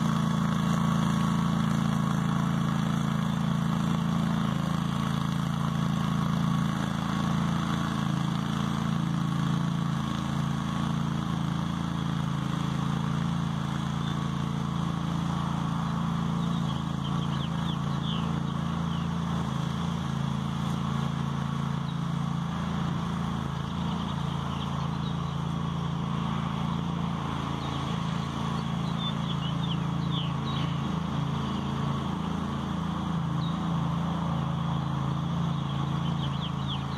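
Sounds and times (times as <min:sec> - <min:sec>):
garden tractor engine running: 0:00.0 - 0:36.9
bird chirps: 0:16.4 - 0:19.2, 0:23.9 - 0:25.4, 0:28.6 - 0:30.9, 0:35.5 - 0:36.9.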